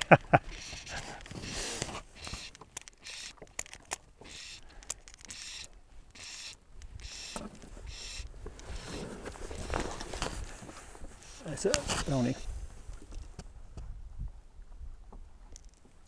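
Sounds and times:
faint clicks: 0.0s - 10.3s
fly line rasping through rod rings: 0.0s - 12.5s.

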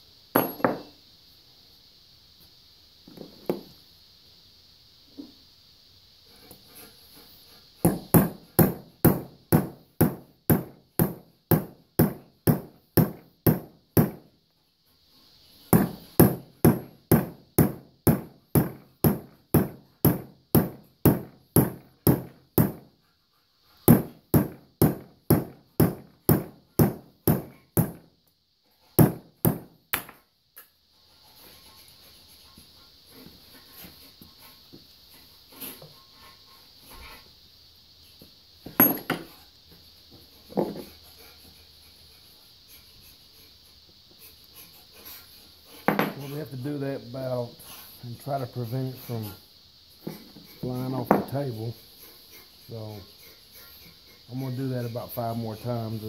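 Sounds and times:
rapid hammer blows on metal: 7.8s - 14.3s, 15.6s - 22.9s, 23.8s - 28.1s.

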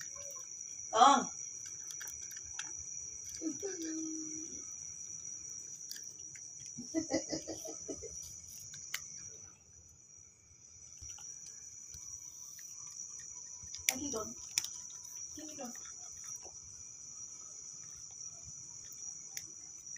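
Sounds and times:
crickets trilling: 0.0s - 19.9s
cat chewing dry kibble: 1.4s - 4.0s, 4.6s - 6.8s, 8.1s - 9.5s, 10.9s - 19.9s.

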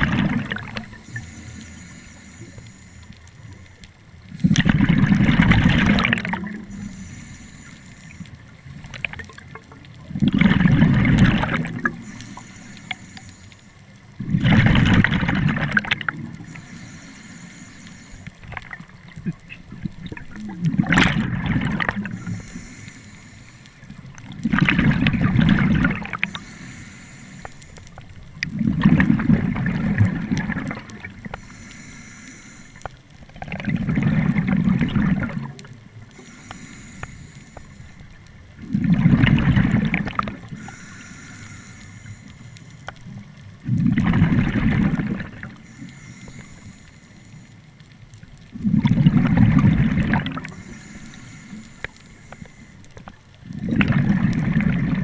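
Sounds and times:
exhaled bubbles underwater: 0.0s - 1.7s, 4.3s - 7.1s, 8.2s - 12.9s, 14.2s - 16.7s, 18.4s - 22.8s, 23.8s - 26.5s, 28.2s - 31.5s, 33.1s - 35.9s, 38.4s - 41.2s, 43.0s - 45.8s, 48.3s - 50.9s, 53.0s - 55.0s
regulator valve hiss: 6.7s - 8.4s, 12.0s - 13.7s, 16.5s - 18.3s, 22.1s - 23.8s, 26.3s - 27.8s, 36.1s - 38.0s, 40.6s - 42.8s, 45.6s - 47.6s, 50.5s - 52.8s.

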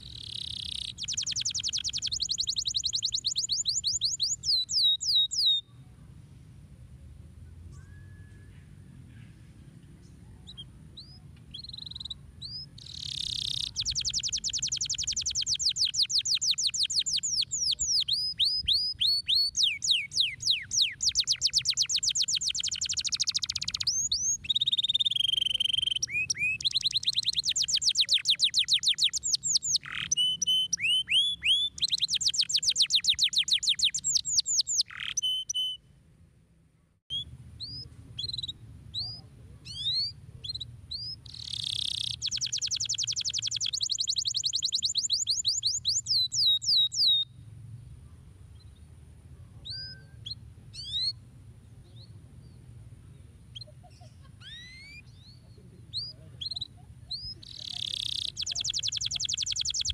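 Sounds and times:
canary singing: 0.0s - 5.7s, 10.4s - 35.8s, 37.1s - 47.3s, 53.5s - 59.9s.

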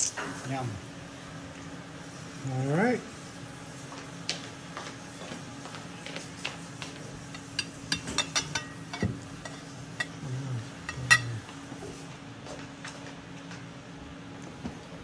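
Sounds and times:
plate clink: 7.3s - 10.2s, 10.8s - 11.4s
plates clicking on table: 7.4s - 10.2s, 10.9s - 11.4s.

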